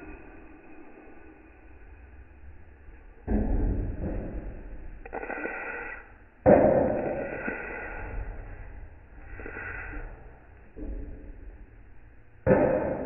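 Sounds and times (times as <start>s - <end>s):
metal spoon scraping a wok: 5.0s - 6.1s
loud knock: 12.4s - 13.0s.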